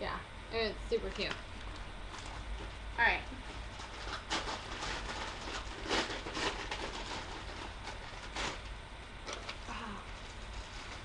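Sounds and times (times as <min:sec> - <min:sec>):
low steady hum: 0:00.0 - 0:11.0
packaging rustling: 0:01.6 - 0:02.8, 0:03.4 - 0:11.0.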